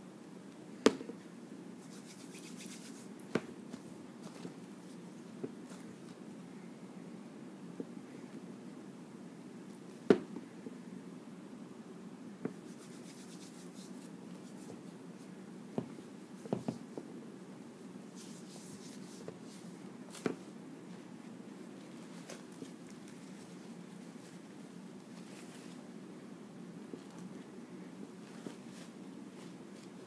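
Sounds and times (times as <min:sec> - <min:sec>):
soft rubbing and rustling: 0:01.8 - 0:06.2, 0:12.5 - 0:17.1, 0:18.0 - 0:26.0, 0:26.9 - 0:30.0.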